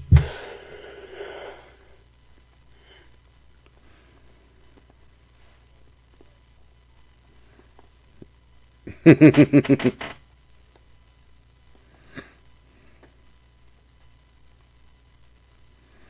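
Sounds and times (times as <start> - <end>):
person laughing: 8.9 - 10.1.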